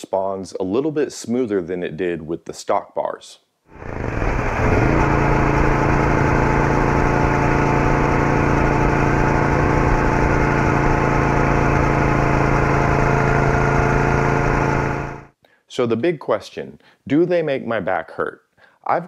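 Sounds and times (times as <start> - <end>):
motorcycle engine running: 3.7 - 15.3.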